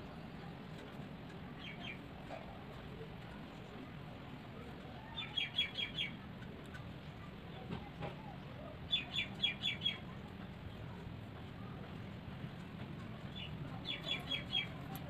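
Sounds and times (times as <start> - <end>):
small bird chirping: 13.3 - 14.9.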